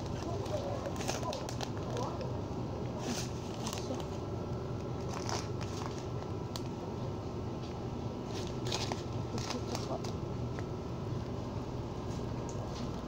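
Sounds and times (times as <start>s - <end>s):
crinkling rustles and clicks: 0.0s - 6.8s, 7.7s - 11.4s
low hum of shop interior: 0.0s - 13.0s.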